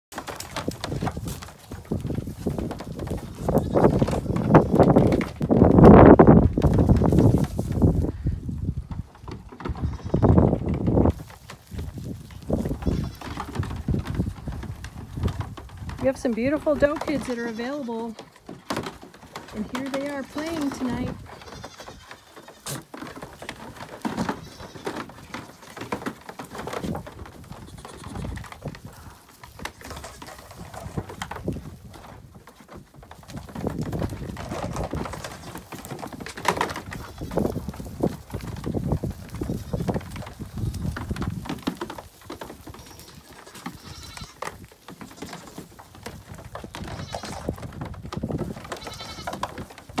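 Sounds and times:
goat kids bleating: 3.2 - 5.0, 9.7 - 10.5, 12.6 - 13.6, 16.8 - 18.4, 19.6 - 22.9, 24.2 - 25.8, 27.6 - 28.4, 42.1 - 45.7, 46.6 - 47.6, 48.7 - 49.5
hooves knocking on hollow plastic: 9.0 - 50.0.

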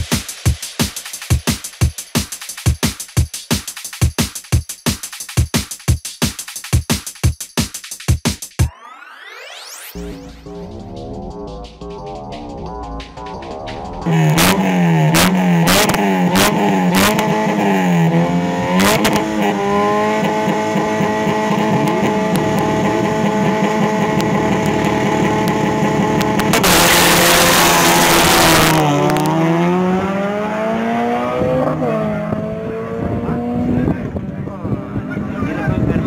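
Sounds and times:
car engine revving with cracks: 9.9 - 35.2.

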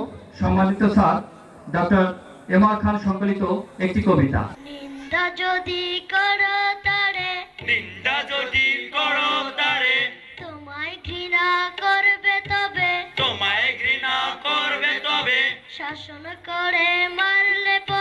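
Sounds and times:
boys singing together: 4.6 - 18.0.

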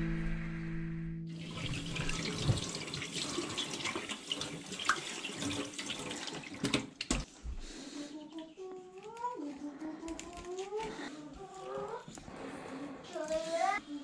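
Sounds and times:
hands washing and splashing: 1.4 - 7.3
tap running into sink: 1.4 - 7.3.

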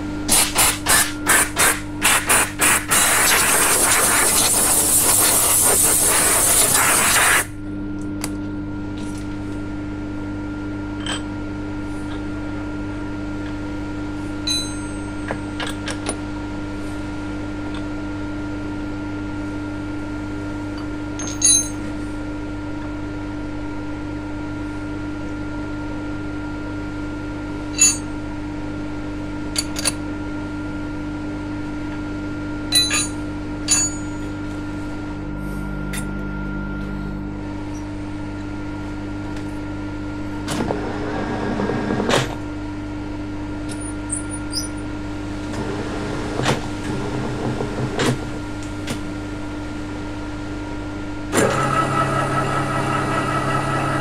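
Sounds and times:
electrical hum of machinery: 0.0 - 54.0
steel parts clinking: 21.2 - 21.8, 32.7 - 34.2.

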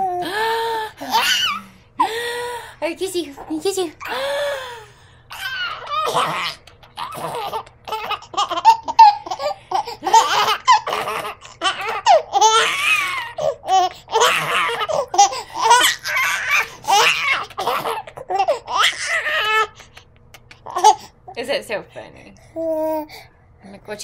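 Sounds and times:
baby laughing: 1.0 - 1.6, 5.3 - 21.1.

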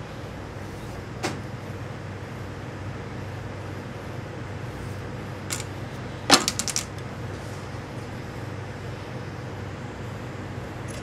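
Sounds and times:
steady low hum: 0.0 - 11.0
wooden yardstick dropped on table: 6.3 - 7.0.

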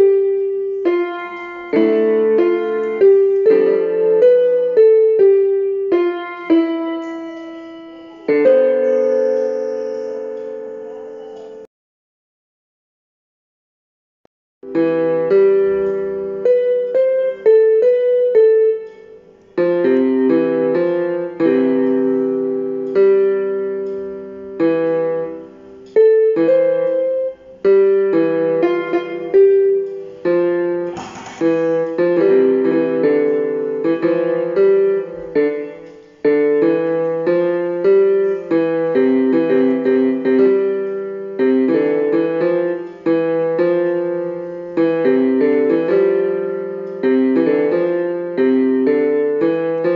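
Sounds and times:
solo piano music: 0.0 - 11.7, 14.6 - 49.9.

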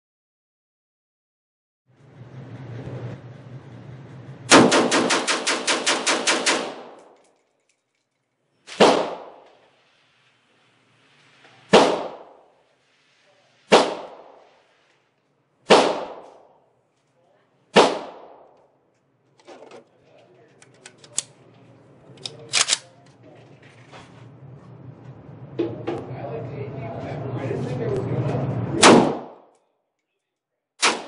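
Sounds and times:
rifle shots echoing indoors: 4.5 - 7.4, 8.6 - 9.9, 11.7 - 12.6, 13.7 - 14.7, 15.6 - 16.6, 17.7 - 18.6, 28.8 - 29.6, 30.8 - 31.0.

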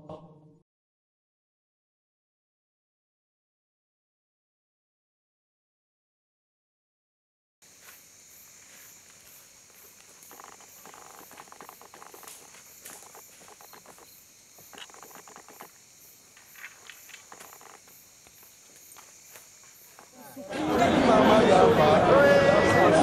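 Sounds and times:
very high insect chirp: 7.6 - 20.8
crickets trilling: 7.6 - 21.6
light scuffs and clicks: 7.7 - 15.6.

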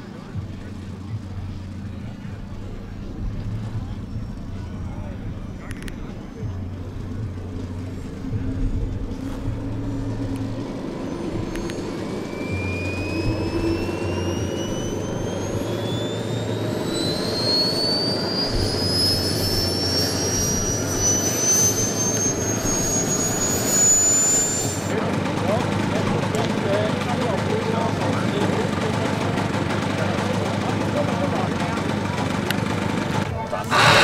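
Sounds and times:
thin high whine rising in pitch: 3.0 - 24.9, 33.7 - 34.0
model airplane propeller and motor: 18.2 - 34.0.

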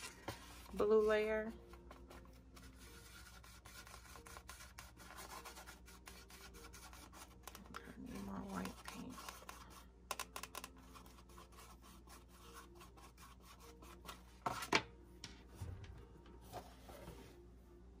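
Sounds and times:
paintbrush scrubbing on palette: 0.0 - 9.8, 10.8 - 14.6.

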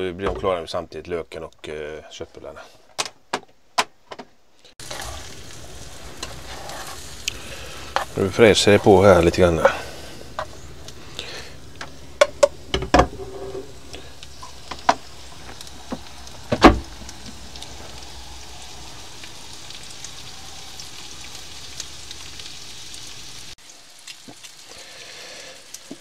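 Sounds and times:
food sizzling in a pan: 4.8 - 26.0.

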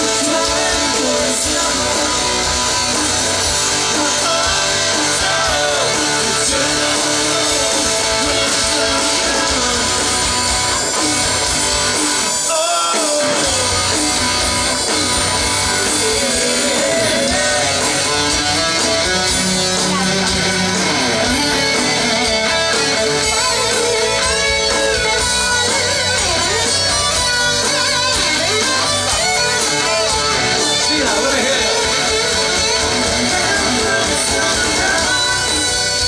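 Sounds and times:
electric guitar solo: 0.0 - 36.0
hard rock band playing: 0.0 - 36.0.

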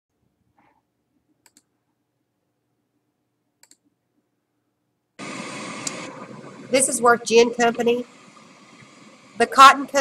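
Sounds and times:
computer mouse double clicks: 3.6 - 3.8.

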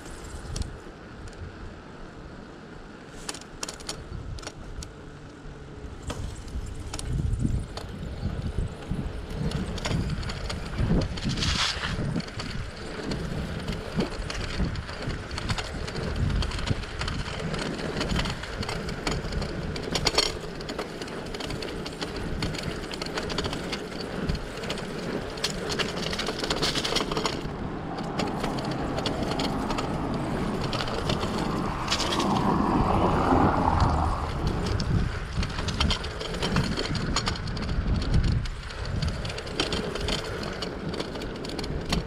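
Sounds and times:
bike clicks and rattles: 0.0 - 1.6, 2.4 - 42.0
bicycle tyre noise on road: 0.0 - 42.0
low rumble: 27.0 - 38.5.

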